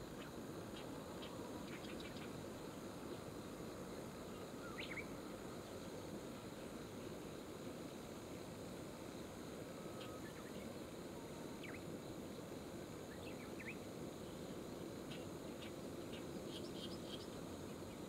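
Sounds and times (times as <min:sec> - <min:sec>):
small birds chirping: 0:00.1 - 0:02.4, 0:04.3 - 0:05.1, 0:13.1 - 0:14.5, 0:15.1 - 0:18.0.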